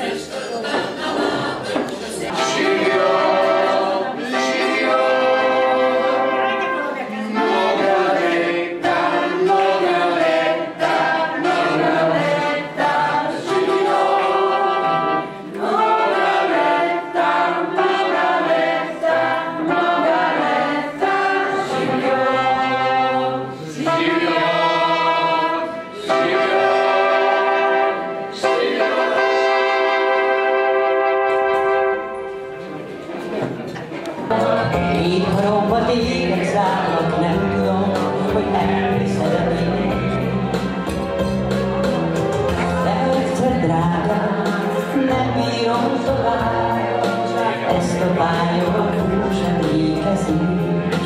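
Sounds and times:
electronic keyboard: 2.2 - 51.0
woman singing: 34.3 - 40.1, 42.6 - 46.8, 47.5 - 51.0
man singing: 34.3 - 40.3, 42.7 - 51.0.

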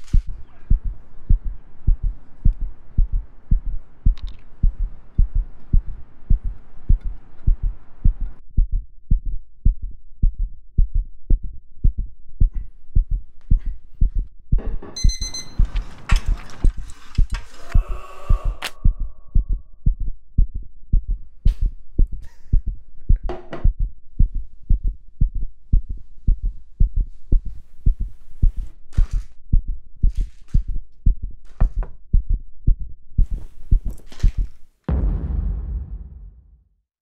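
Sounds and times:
fast heartbeat thumping: 0.1 - 14.9, 18.3 - 36.6
loud low boom: 34.9 - 36.8.

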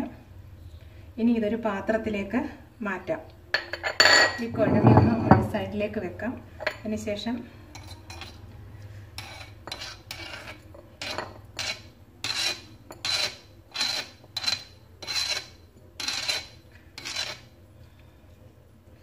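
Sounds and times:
spoon scraping stone slab: 7.7 - 8.5, 9.1 - 17.5.

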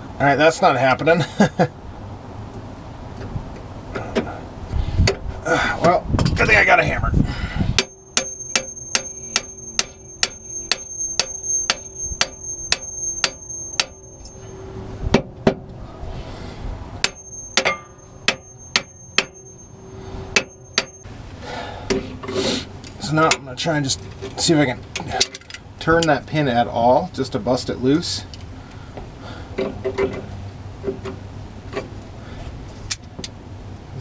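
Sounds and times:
hammer blows on steel: 7.7 - 15.2, 17.0 - 19.7.

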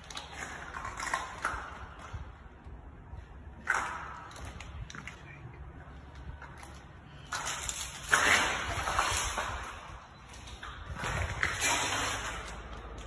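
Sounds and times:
water pouring over icicles: 7.3 - 13.0.

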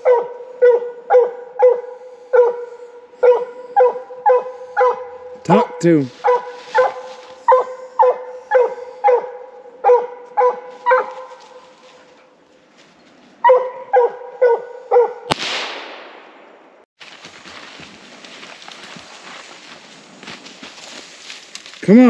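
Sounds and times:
dog barking: 0.0 - 12.1, 13.4 - 15.3
sharp crack with hiss: 15.3 - 16.7
rustling: 17.0 - 21.8.

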